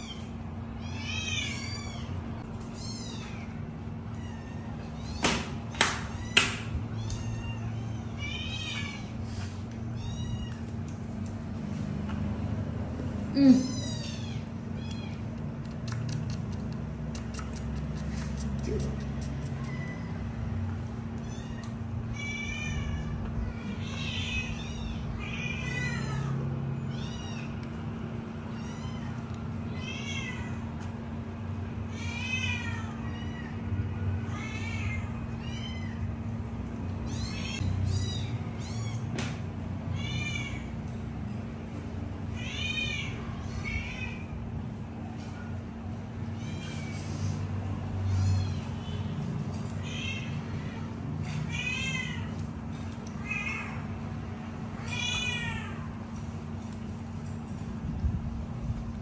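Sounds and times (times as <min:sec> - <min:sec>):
kittens mewing: 0:13.2 - 0:27.6, 0:31.7 - 0:41.1, 0:45.7 - 0:56.2.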